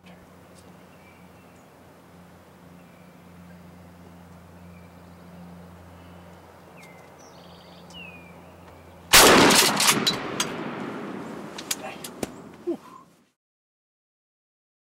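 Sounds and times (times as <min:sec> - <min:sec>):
low steady hum: 0:00.0 - 0:13.3
loud shotgun blast: 0:09.1 - 0:11.4.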